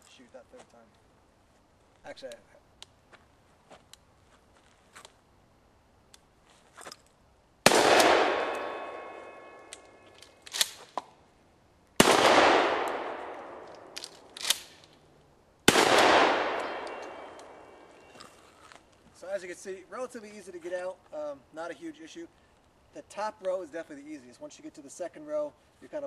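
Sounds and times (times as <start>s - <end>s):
shotgun shots echoing: 7.6s - 9.8s, 12.0s - 14.8s, 15.7s - 17.9s
metal target ringing: 8.0s - 10.0s, 16.1s - 18.1s.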